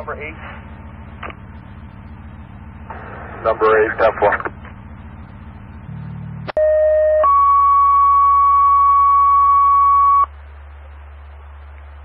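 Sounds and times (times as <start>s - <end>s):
radio hiss: 2.9s - 4.7s
two-tone radio page tones: 6.1s - 10.3s.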